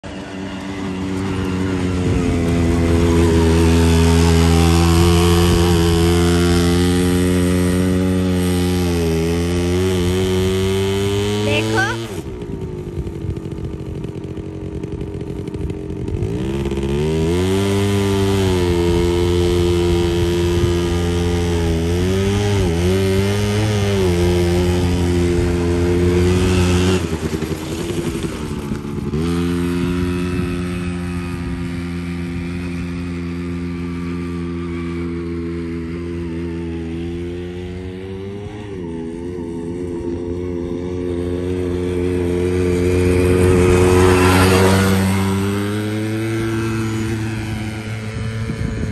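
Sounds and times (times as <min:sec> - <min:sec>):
quad bike engine revving: 0:00.0 - 0:48.9.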